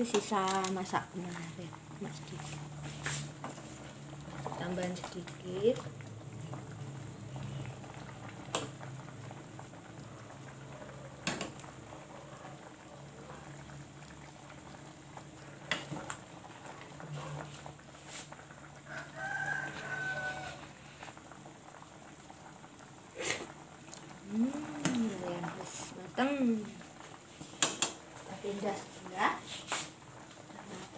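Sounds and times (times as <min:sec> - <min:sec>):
soup simmering in a pot: 0:00.0 - 0:30.9
rooster crowing: 0:18.8 - 0:20.8.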